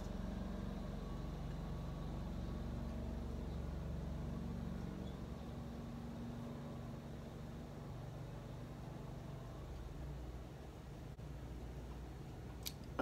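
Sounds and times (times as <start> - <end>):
low mechanical hum and rumble: 0.0 - 13.0.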